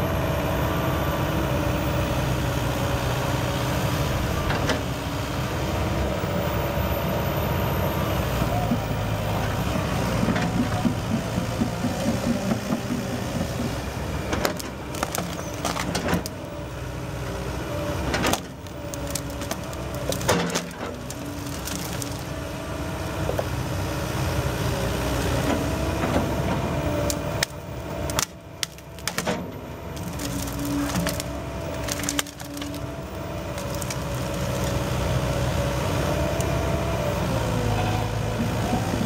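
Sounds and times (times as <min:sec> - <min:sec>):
excavator diesel engine running: 0:00.0 - 0:39.0
branches and logs cracking: 0:10.2 - 0:23.8, 0:25.2 - 0:37.1.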